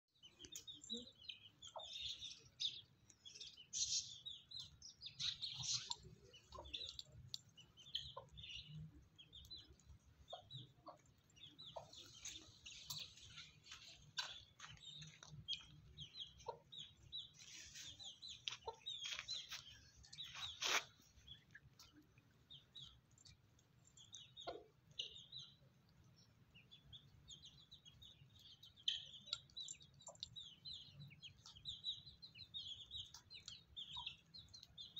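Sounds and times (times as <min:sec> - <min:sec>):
chickens clucking: 0:04.5 - 0:21.9, 0:24.2 - 0:25.3.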